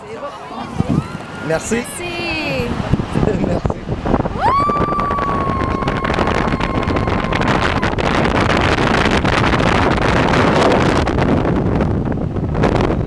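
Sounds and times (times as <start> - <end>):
wind noise on microphone: 0.0 - 13.0
snow tube sliding on snow: 0.2 - 13.0
woman screaming: 4.4 - 8.0.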